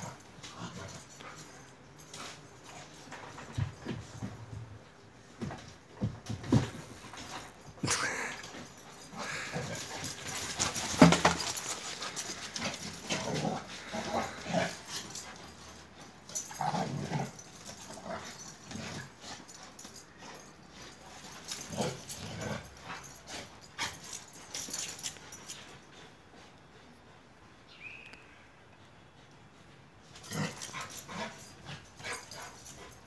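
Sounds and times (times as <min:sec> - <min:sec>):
dogs play-fighting vocal sounds: 0:07.2 - 0:25.4.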